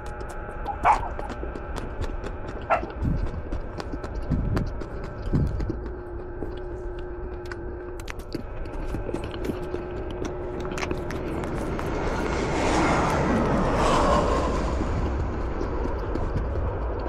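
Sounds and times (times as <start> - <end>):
chewing leaves: 0.0 - 17.0
faint steady hum: 0.0 - 17.0.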